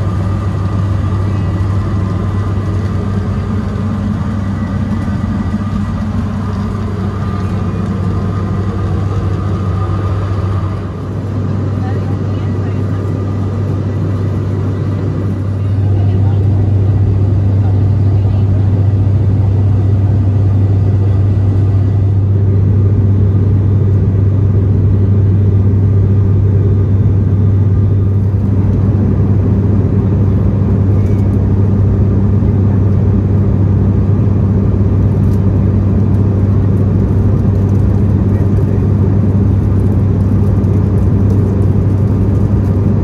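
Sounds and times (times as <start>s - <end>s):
propeller engine drone: 0.0s - 43.0s.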